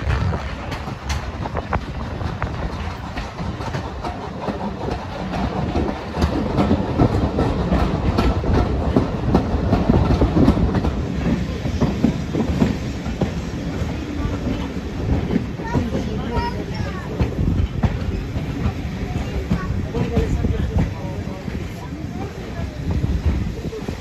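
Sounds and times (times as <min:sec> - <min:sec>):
train rumbling: 0:00.0 - 0:24.0
wheels clattering over rail joints: 0:00.0 - 0:24.0.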